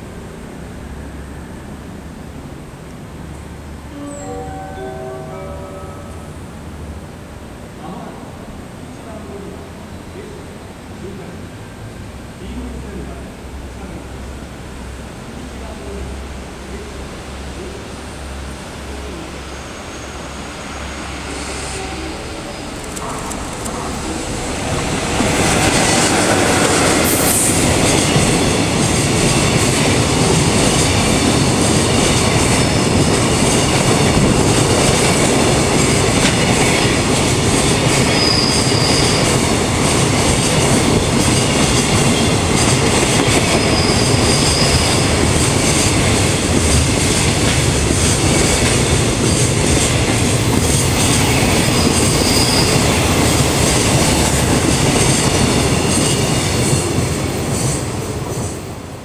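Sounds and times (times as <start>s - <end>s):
train wheels rolling on rails: 18.1s - 59.0s
high wheel squeals: 38.0s - 39.5s, 43.2s - 45.4s, 50.8s - 53.8s.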